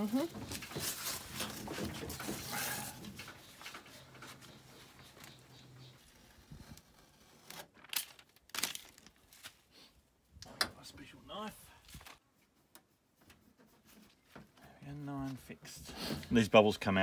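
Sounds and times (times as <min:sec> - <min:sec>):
paper backing peeling and crinkling: 0:00.0 - 0:09.6.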